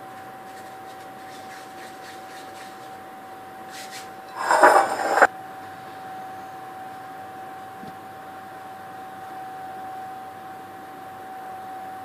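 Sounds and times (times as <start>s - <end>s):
faint lighter scrapes: 4.3s - 5.3s
rough rubbing scrape: 4.3s - 5.3s
steady high hum: 4.3s - 5.3s.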